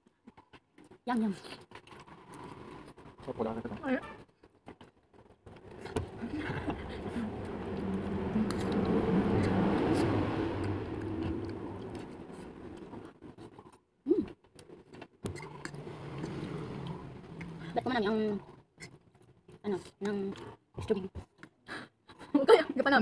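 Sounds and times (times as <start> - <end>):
vehicle engine passing: 5.6 - 13.4, 15.3 - 18.7.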